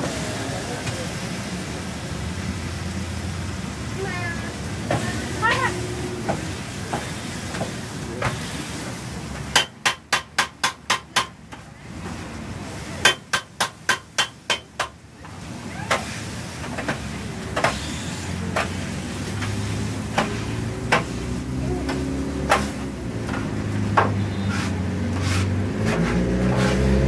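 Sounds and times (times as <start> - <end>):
meat sizzling: 15.5 - 23.9.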